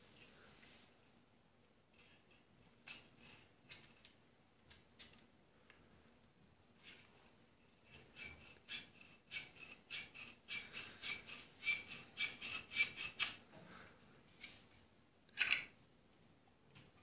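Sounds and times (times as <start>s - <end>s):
wooden parts rubbing and squeaking: 7.8s - 13.4s.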